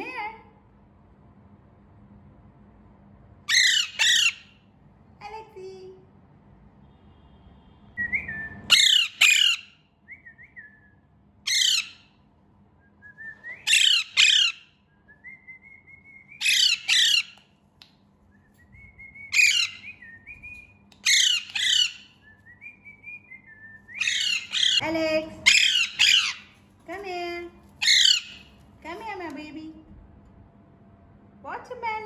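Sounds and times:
parakeet squawking: 0:03.5 - 0:04.6, 0:08.7 - 0:09.7, 0:11.5 - 0:12.1, 0:13.7 - 0:14.7, 0:16.4 - 0:17.4, 0:19.4 - 0:19.9, 0:21.0 - 0:22.2, 0:24.0 - 0:26.6, 0:27.8 - 0:28.6
soft whistled chirps: 0:10.1 - 0:11.0, 0:12.8 - 0:13.7, 0:14.9 - 0:16.4, 0:18.3 - 0:20.8, 0:22.0 - 0:24.3.

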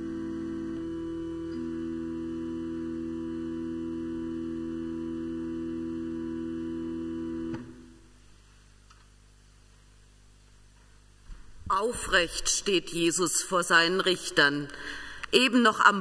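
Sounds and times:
church organ chord: 0:00.0 - 0:07.9.

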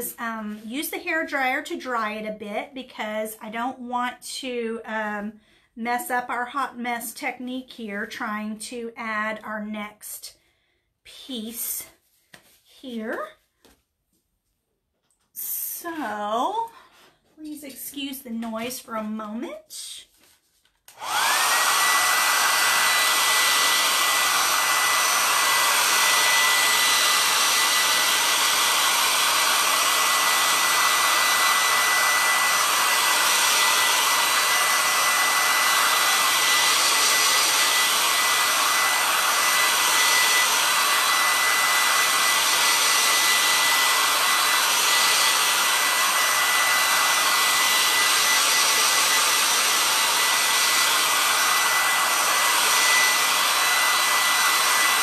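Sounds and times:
hair dryer running: 0:20.9 - 0:55.0.

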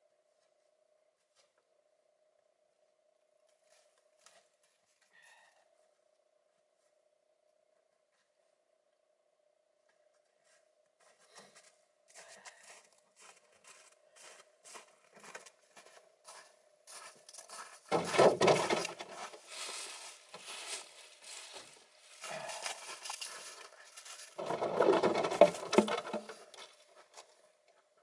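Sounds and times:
footsteps crunching on snow: 0:10.4 - 0:24.4.

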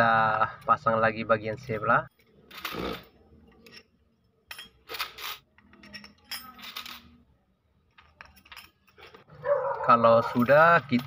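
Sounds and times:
metal spokes clinking: 0:01.7 - 0:07.2, 0:07.9 - 0:11.0.

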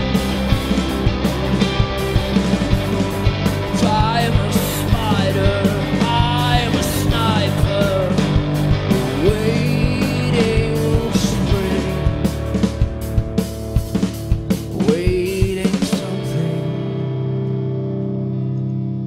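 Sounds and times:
drums: 0:00.0 - 0:17.9
bass guitar: 0:00.0 - 0:19.0
electric guitar: 0:00.0 - 0:19.0
man singing: 0:03.6 - 0:12.4, 0:14.7 - 0:17.2.

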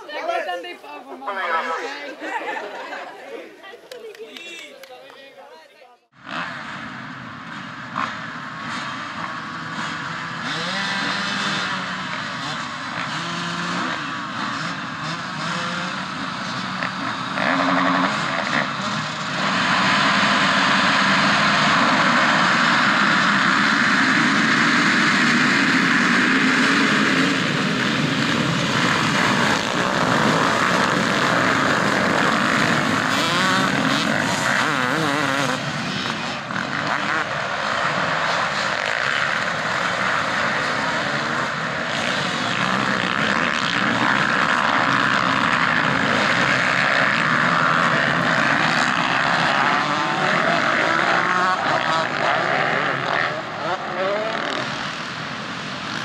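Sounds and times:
motocross bike engines revving: 0:00.0 - 0:05.2, 0:06.0 - 0:56.0.

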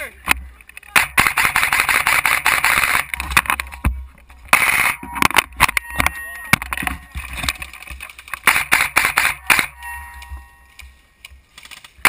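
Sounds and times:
airsoft rifle firing: 0:00.9 - 0:03.6, 0:04.5 - 0:05.1, 0:08.4 - 0:09.8.

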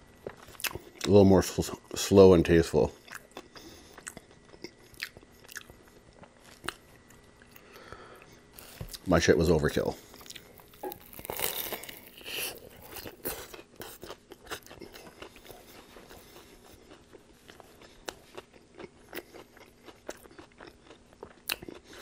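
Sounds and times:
crunchy food being chewed: 0:00.0 - 0:22.0.

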